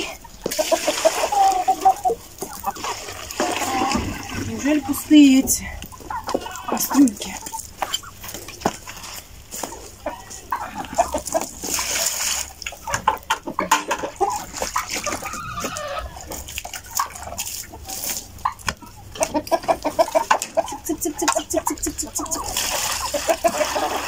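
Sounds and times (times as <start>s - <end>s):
hens clucking: 0.0s - 24.0s.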